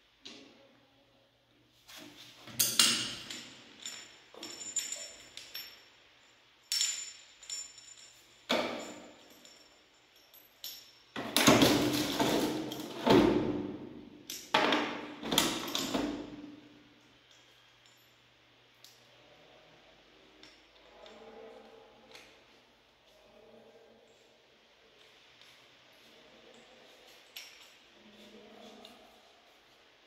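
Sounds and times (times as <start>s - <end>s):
light metallic clinks: 2.5s - 11.6s, 25.0s - 29.6s.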